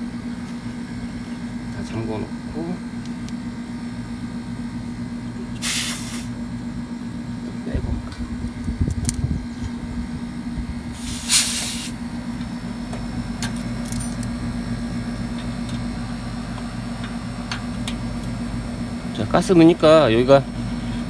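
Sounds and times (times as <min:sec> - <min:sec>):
air conditioner humming: 0:00.0 - 0:21.0
gas hissing from a hose: 0:05.6 - 0:06.4, 0:10.9 - 0:12.0.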